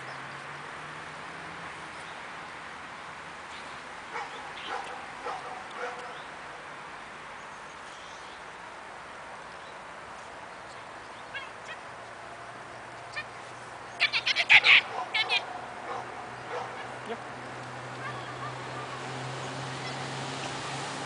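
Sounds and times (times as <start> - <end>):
outdoor background noise: 0.0 - 21.0
faint animal calls: 11.2 - 11.9, 13.1 - 17.2.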